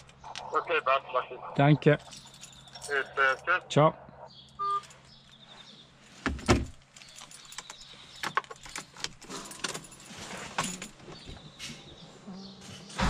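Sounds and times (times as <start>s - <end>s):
metallic clinks and rattles: 2.0s - 3.4s, 6.4s - 11.5s.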